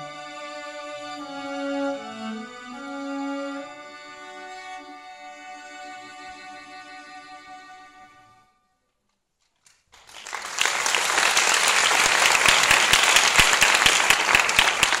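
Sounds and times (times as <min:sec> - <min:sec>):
bowed string ensemble chord: 0:00.0 - 0:08.5
audience applause: 0:09.9 - 0:15.0.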